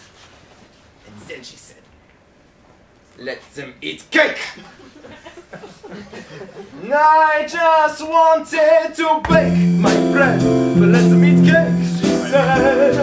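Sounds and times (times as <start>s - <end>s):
man singing show tune: 6.8s - 13.0s
keyboard accompaniment: 9.2s - 13.0s.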